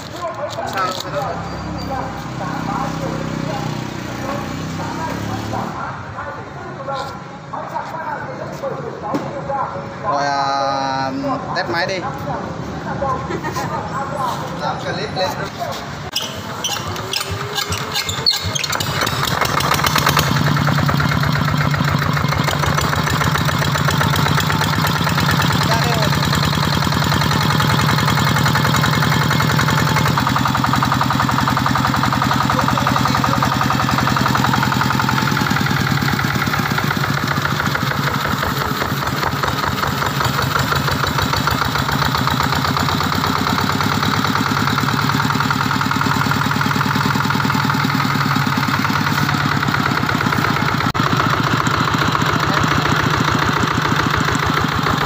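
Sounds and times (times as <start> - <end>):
diesel engine chugging: 0.0 - 6.9, 10.0 - 55.0.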